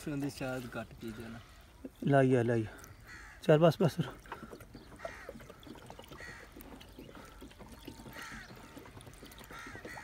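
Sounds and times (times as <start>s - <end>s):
crows cawing: 2.7s - 10.0s.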